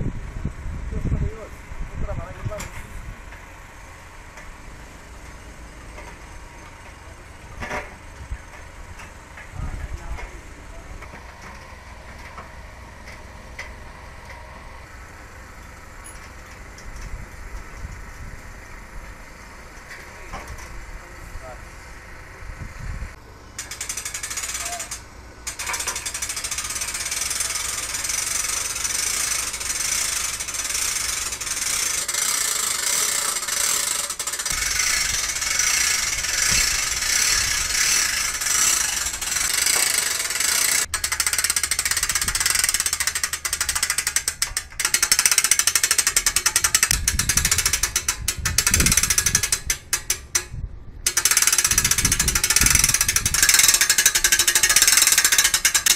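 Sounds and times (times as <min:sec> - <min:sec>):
winch ratchet clicking rapidly: 0:23.6 - 0:55.9.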